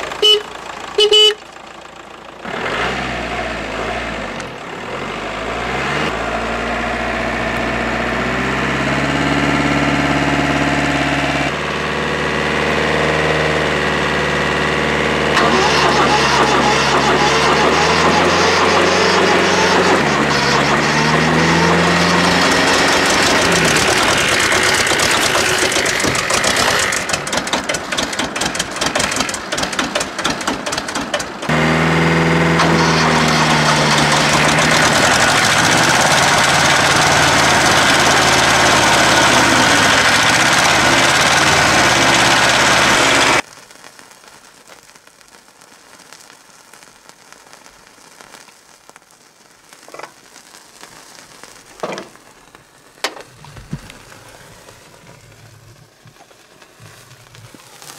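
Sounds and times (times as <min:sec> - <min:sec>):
diesel tractor engine running: 0:00.0 - 0:43.4, 0:53.0 - 0:57.6
faint hiss of flame: 0:43.4 - 0:57.9.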